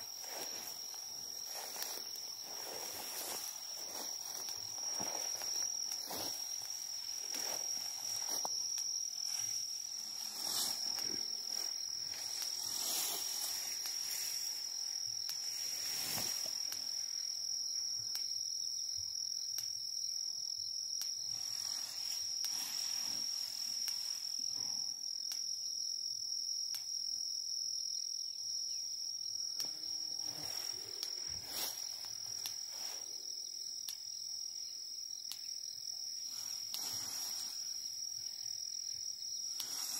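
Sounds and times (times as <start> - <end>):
insects trilling: 0.0 - 39.9
soft rustles: 0.1 - 8.5.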